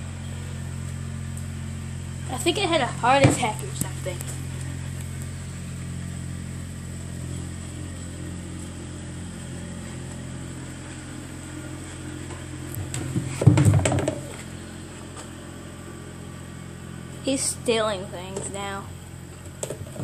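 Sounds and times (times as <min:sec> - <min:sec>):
low machine hum: 0:00.0 - 0:20.0
loud knocking and rustling: 0:12.3 - 0:14.6.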